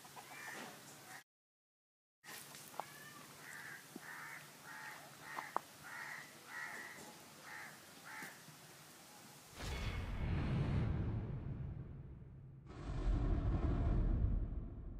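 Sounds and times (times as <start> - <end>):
crow cawing: 0.2 - 1.2, 2.8 - 8.4
loud low rushing: 9.6 - 14.9.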